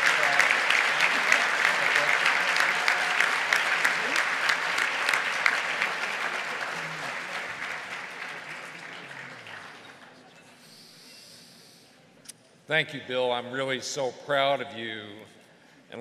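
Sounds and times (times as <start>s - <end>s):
audience applauding: 0.0s - 10.3s.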